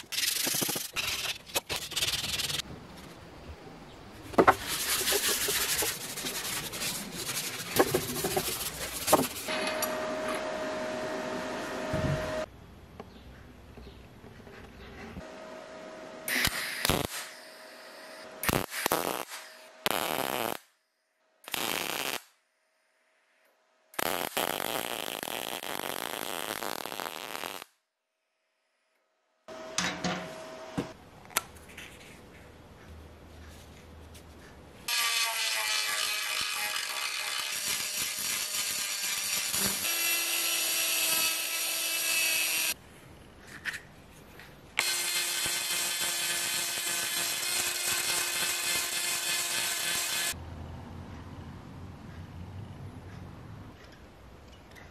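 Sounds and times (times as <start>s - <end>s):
welder crackling: 16.3s - 20.6s, 21.5s - 22.3s, 24.0s - 27.7s, 35.1s - 42.8s, 44.8s - 50.4s.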